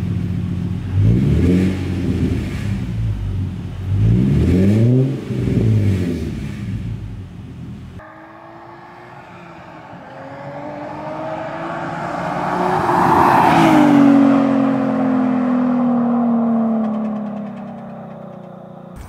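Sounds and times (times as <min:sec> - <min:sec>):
car passing at speed: 0:08.0 - 0:19.0.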